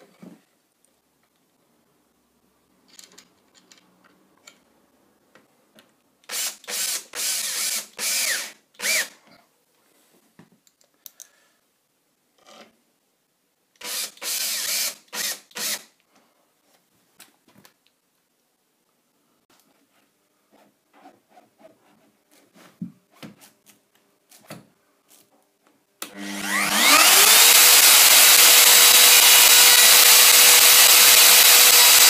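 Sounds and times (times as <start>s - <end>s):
cordless drill spinning: 6.3s - 9.2s, 13.8s - 15.8s, 26.1s - 32.0s.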